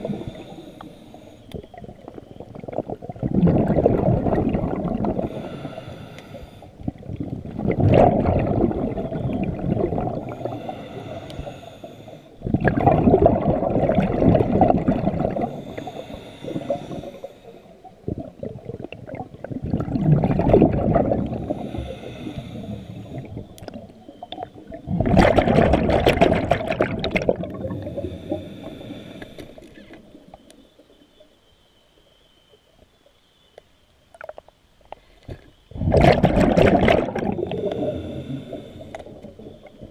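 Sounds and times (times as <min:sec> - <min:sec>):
exhaled bubbles rushing: 0:00.0 - 0:00.6, 0:01.6 - 0:05.8, 0:06.8 - 0:10.8, 0:12.4 - 0:17.1, 0:17.8 - 0:28.6, 0:35.7 - 0:39.9
diver inhaling through regulator: 0:00.0 - 0:01.5, 0:04.6 - 0:07.0, 0:08.9 - 0:12.6, 0:15.0 - 0:17.8, 0:21.0 - 0:23.6, 0:27.4 - 0:30.1, 0:37.0 - 0:39.5.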